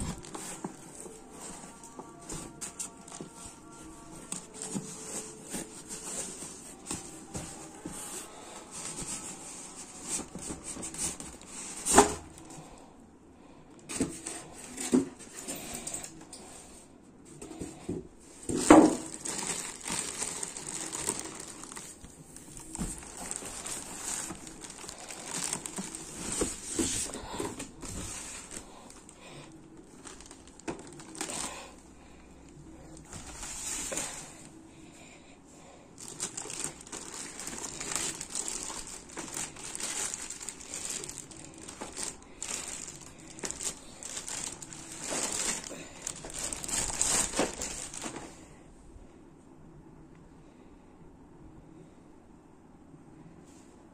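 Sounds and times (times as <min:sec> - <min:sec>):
cardboard and styrofoam shifting: 0:00.0 - 0:12.4, 0:18.3 - 0:29.0, 0:29.8 - 0:31.5, 0:33.0 - 0:34.3, 0:36.0 - 0:48.4
plastic bag crinkling: 0:18.5 - 0:31.8, 0:36.0 - 0:48.4.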